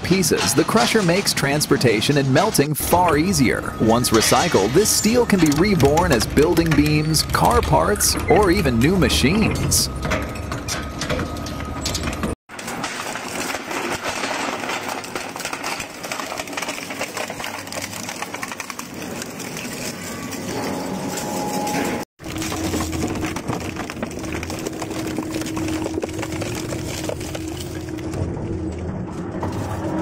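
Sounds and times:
shredder clattering and crunching: 11.9s - 28.4s.

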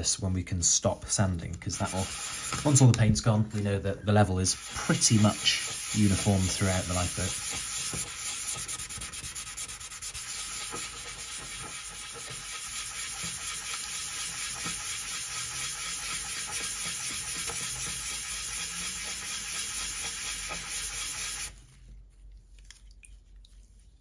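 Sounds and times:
wet sanding scratchy rubbing: 1.6s - 2.9s, 4.3s - 21.6s.

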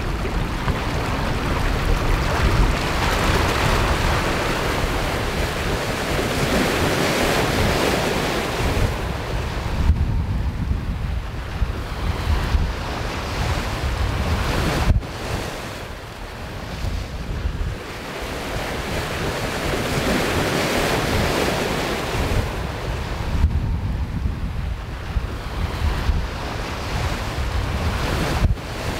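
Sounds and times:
choppy sea and breaking waves: 0.0s - 28.9s
wind buffeting microphone: 0.0s - 28.9s.

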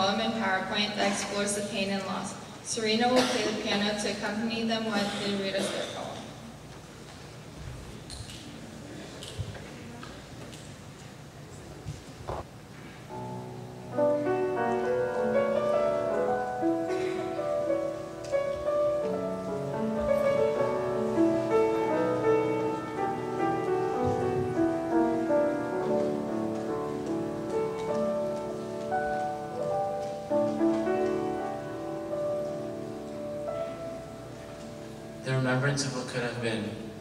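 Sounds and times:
grand piano playing: 12.5s - 37.0s.

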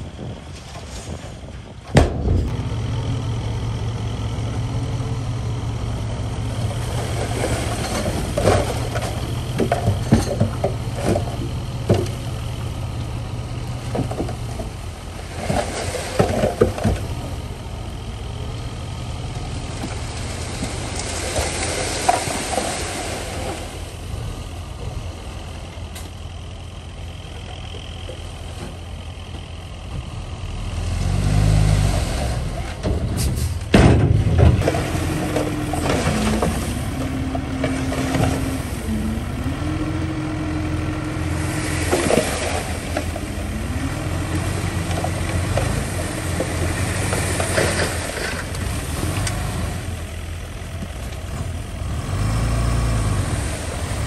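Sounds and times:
diesel engine running: 0.0s - 54.0s
machinery clanks and knocks: 0.2s - 2.8s, 6.4s - 17.5s, 32.6s - 39.4s, 41.1s - 49.5s.

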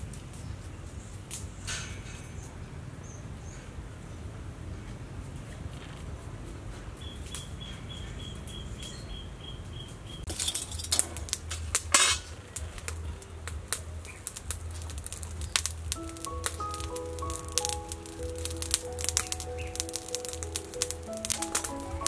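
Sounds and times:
bird chirping: 7.0s - 10.4s, 15.3s - 22.0s
metallic clicks and clatters: 10.3s - 16.6s.

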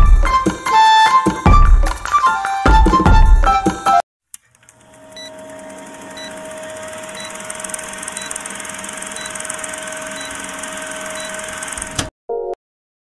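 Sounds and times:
projector whirring and ticking: 4.4s - 12.1s.

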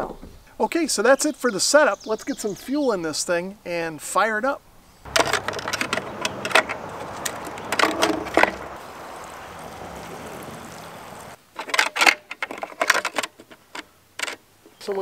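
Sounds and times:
fuel cap and gas can clicks: 5.1s - 8.6s
gasoline pouring into fuel tank: 5.1s - 11.4s.

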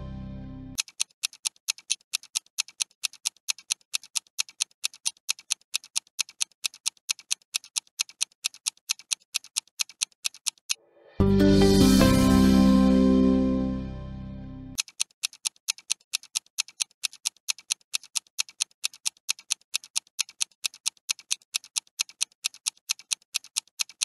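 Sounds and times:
music: 0.0s - 0.8s, 11.2s - 14.8s
fast clock ticking: 0.8s - 10.8s, 14.8s - 24.0s.

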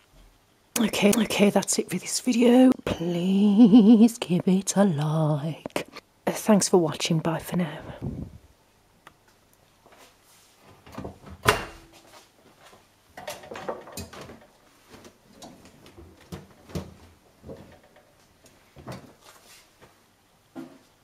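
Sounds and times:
laundry knocks and rustles: 10.6s - 21.0s
washing machine door clunk: 10.9s - 11.9s.

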